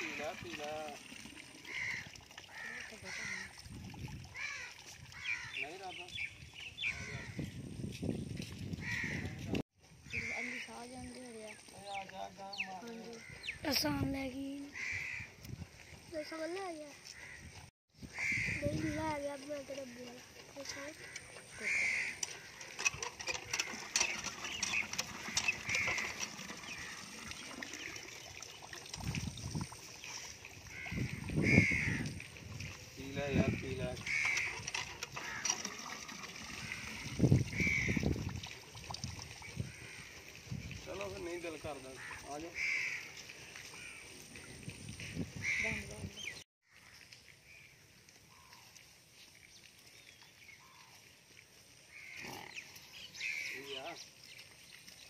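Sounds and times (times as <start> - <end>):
water pouring into trough: 0.0 - 7.1, 18.1 - 45.8
bird calling: 18.1 - 28.7
hand pump handle clanking: 20.3 - 27.3, 33.3 - 36.8.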